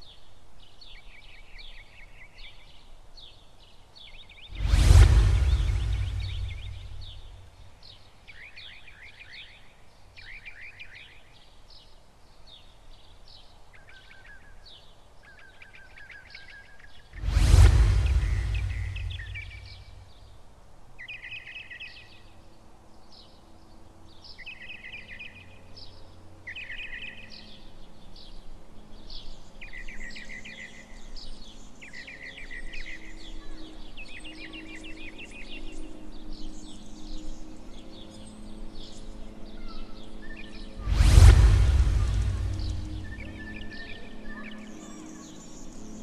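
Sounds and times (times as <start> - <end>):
songbird singing: 0.0 - 4.6, 5.4 - 17.2, 42.5 - 46.0.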